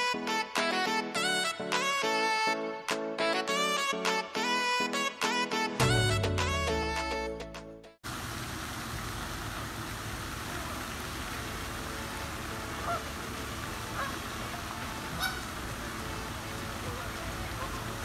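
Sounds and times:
fountain spray rushing: 8.0 - 18.0
geese honking: 10.4 - 18.0.

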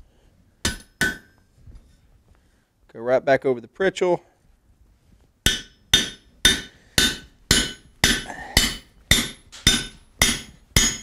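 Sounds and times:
hammer striking steel punch: 0.6 - 1.3, 5.5 - 11.0.

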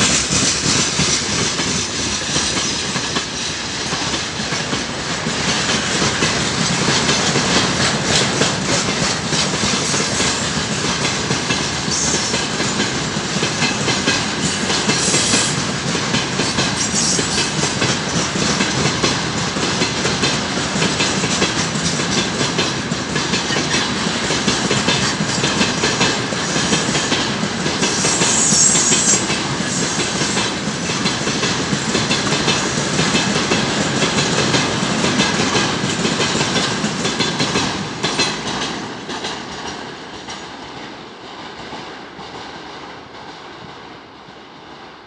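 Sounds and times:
freight train wheels clattering: 0.0 - 44.8
high wheel squeal: 28.0 - 29.2.

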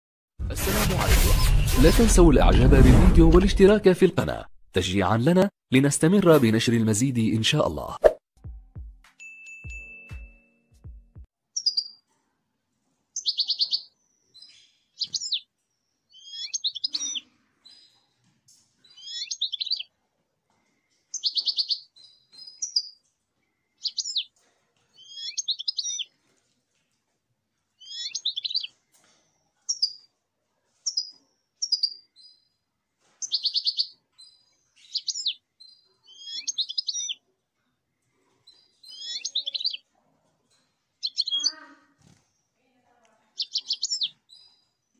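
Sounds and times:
bird twittering song: 11.6 - 12.0, 13.2 - 18.2, 18.8 - 19.9, 21.1 - 24.3, 24.9 - 26.1, 27.8 - 30.1, 30.8 - 32.6, 33.2 - 37.2, 38.4 - 39.8, 40.5 - 42.6, 43.3 - 44.9.

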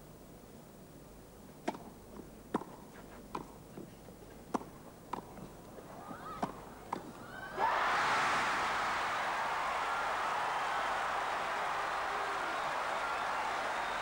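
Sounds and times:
tennis ball hitting racket: 2.5 - 3.5.

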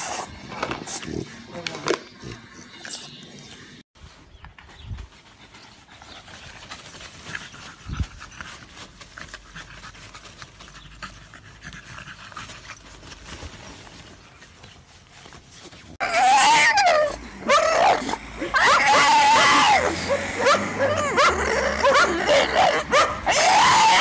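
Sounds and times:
dog panting: 5.1 - 13.4
dog whining cry: 16.0 - 24.0.

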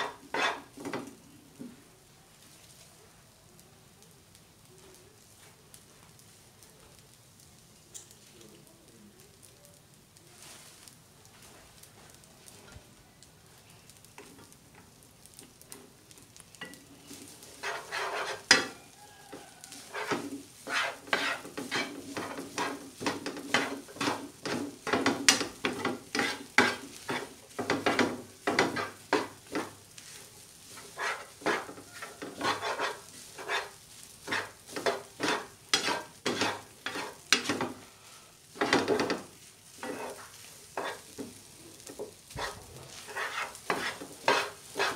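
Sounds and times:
spatula scraping frying pan: 0.0 - 1.1, 16.4 - 44.9
low frying sizzle: 0.0 - 44.9.

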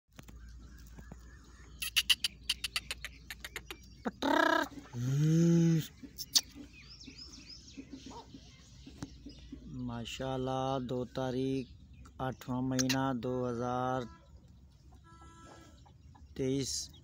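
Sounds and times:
bird loud harsh call: 0.8 - 6.8, 13.8 - 15.9.

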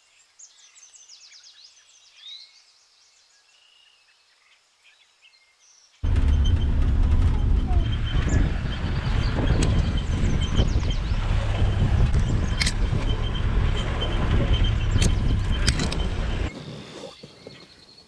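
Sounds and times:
bird chirps: 0.4 - 18.0
vehicle engine rumble from inside: 6.0 - 16.5
wind noise on microphone: 6.0 - 18.0.

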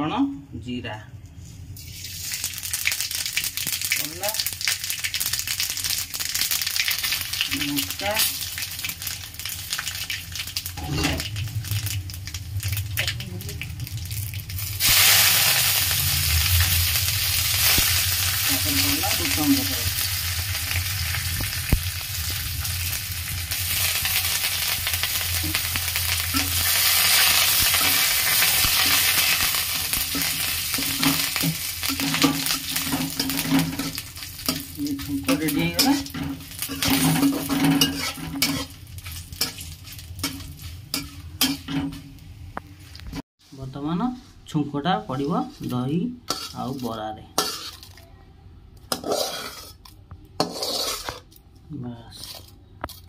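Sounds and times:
spices sizzling in hot oil: 1.8 - 43.2, 45.1 - 48.0, 48.9 - 51.3
metal spatula scraping pan: 10.8 - 11.3, 25.4 - 38.8, 46.3 - 47.9, 48.9 - 51.3, 52.1 - 53.0.

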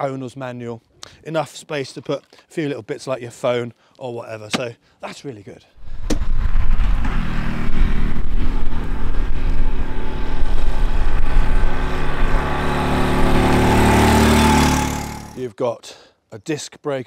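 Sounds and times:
low rumble: 5.8 - 13.7
motorcycle engine running: 6.2 - 15.4.

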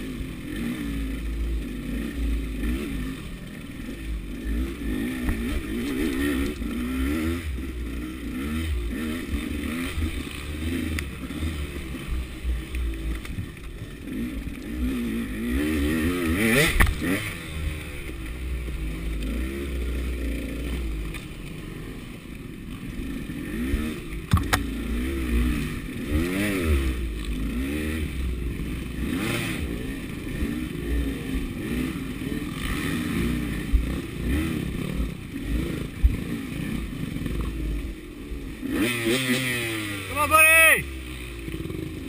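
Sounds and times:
dirt bike engine revving: 0.0 - 42.0
sharp knocks: 24.3 - 24.6.

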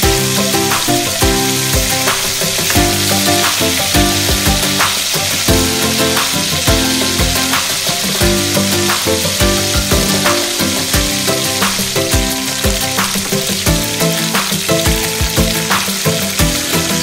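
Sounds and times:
background music with steady beat: 0.0 - 17.0
chicken sizzling in oil: 0.0 - 17.0.

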